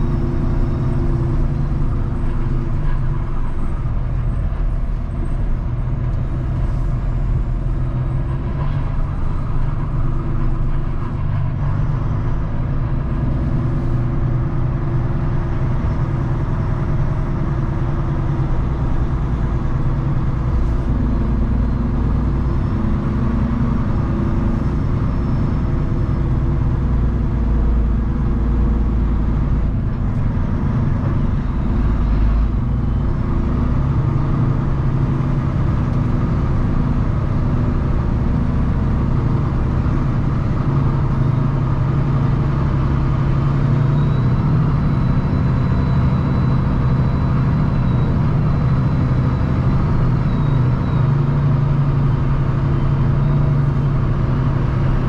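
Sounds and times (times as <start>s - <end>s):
truck diesel engine droning: 0.0s - 55.0s.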